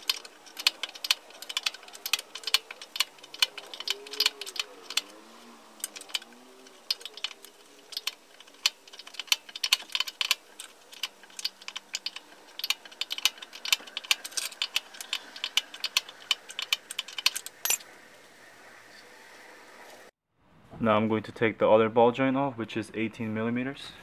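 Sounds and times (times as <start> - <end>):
wrench clicking and rattling: 0.0 - 5.1, 5.8 - 17.8.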